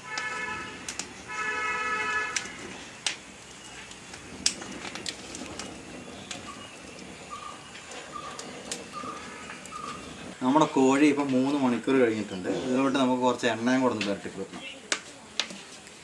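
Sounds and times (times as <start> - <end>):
horn blasts: 0.0 - 2.7
fire crackling and popping: 0.0 - 16.0.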